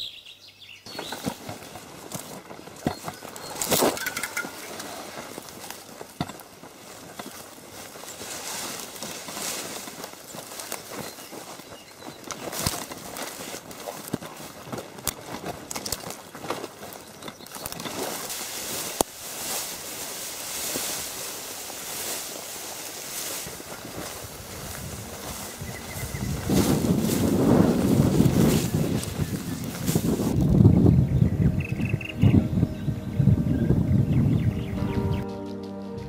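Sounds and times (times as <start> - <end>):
bicycle rattling and clicking: 0.9 - 11.5, 12.1 - 18.2
grass and leaves swishing: 0.9 - 30.9.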